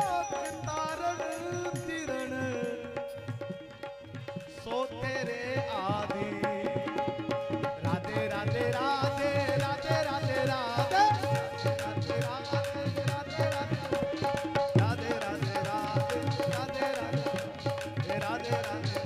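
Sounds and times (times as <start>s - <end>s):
hand drum rhythm: 6.2s - 19.0s.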